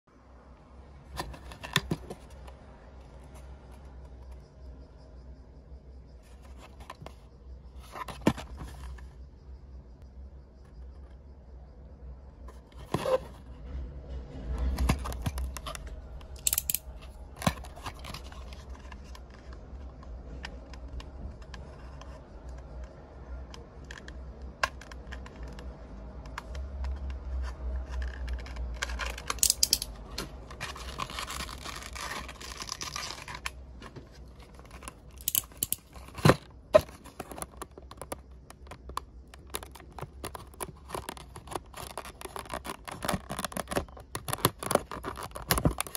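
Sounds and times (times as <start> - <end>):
plastic packaging crinkling: 28.4 - 33.6, 34.2 - 45.9
plastic rustle: 30.3 - 35.2, 36.0 - 45.9.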